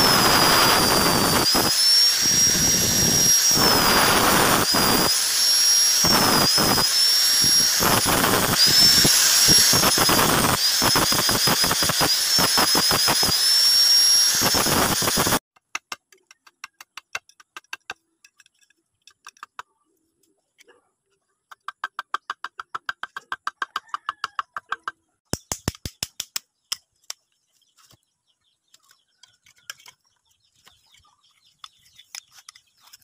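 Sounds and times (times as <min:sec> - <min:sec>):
angle grinder grinding steel: 0:00.0 - 0:15.4.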